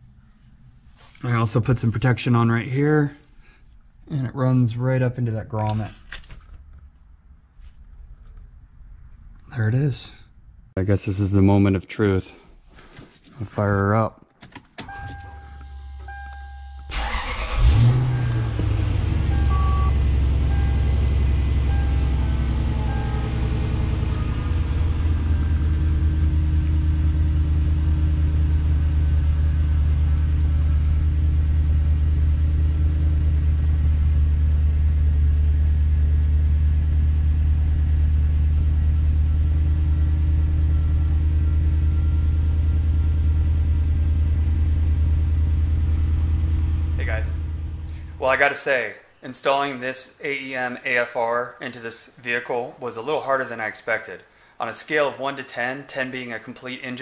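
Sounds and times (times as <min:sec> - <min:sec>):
car engine idling: 0:14.9 - 0:48.4.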